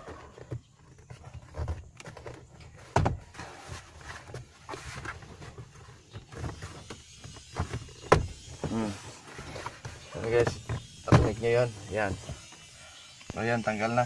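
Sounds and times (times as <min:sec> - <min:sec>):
plastic glovebox knocks and rattles: 0:02.9 - 0:03.2, 0:07.6 - 0:08.7.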